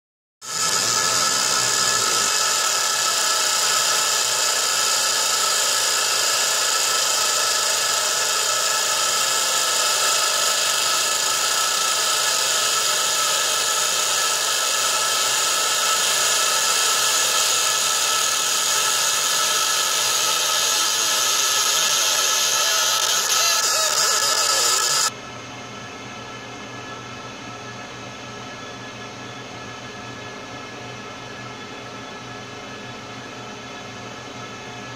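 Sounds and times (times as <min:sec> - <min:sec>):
constant whining tones: 0:00.5 - 0:25.1
laser engraver buzzing hiss: 0:00.5 - 0:25.1.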